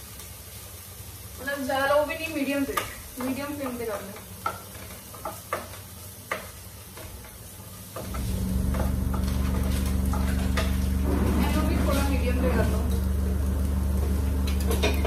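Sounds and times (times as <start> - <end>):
vegetables sizzling in a pan: 0.0 - 15.0
spatula scraping a pan: 8.0 - 13.4
loud steady low hum: 8.1 - 15.0.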